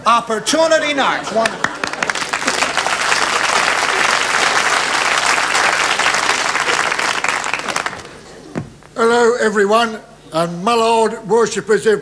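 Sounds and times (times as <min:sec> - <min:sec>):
audience applauding: 0:01.2 - 0:08.4.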